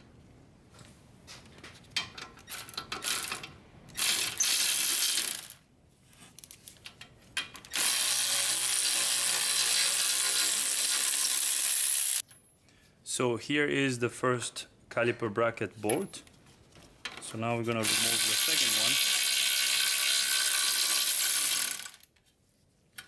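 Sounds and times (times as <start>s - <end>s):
electric ratchet motor running: 7.7s - 12.2s, 17.8s - 22.0s.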